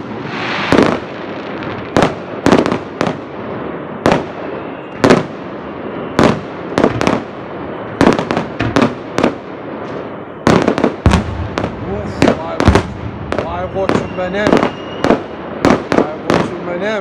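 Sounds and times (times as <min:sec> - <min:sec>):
firework shells bursting: 0:08.0 - 0:16.6.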